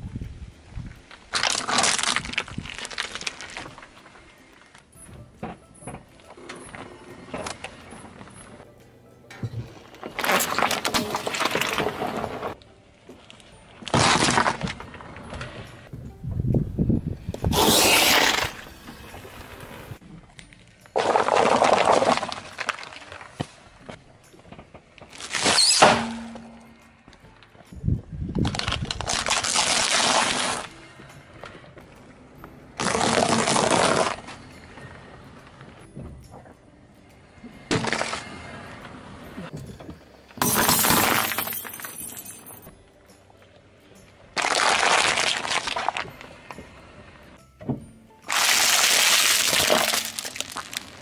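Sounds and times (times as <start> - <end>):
plastic cracking and splitting: 1.2 - 3.9, 10.1 - 12.6, 13.8 - 15.0, 21.0 - 23.5, 28.4 - 30.7, 32.8 - 34.2, 44.4 - 46.1, 48.3 - 51.0
foil balloon crushed with squeal: 1.4 - 3.6, 10.1 - 12.6, 13.9 - 14.8, 17.4 - 18.7, 21.0 - 23.3, 25.1 - 26.2, 28.4 - 30.7, 32.8 - 34.2, 37.7 - 38.3, 44.4 - 46.0, 48.3 - 51.0
tyre crushing paper cups: 10.0 - 12.6, 48.3 - 51.0.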